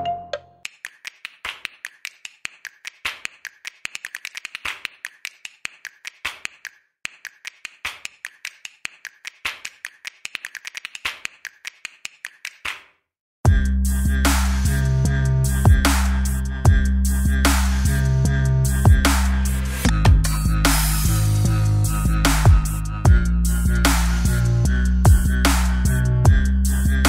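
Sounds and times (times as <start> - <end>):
sharp irregular clicks: 0.6 - 12.8.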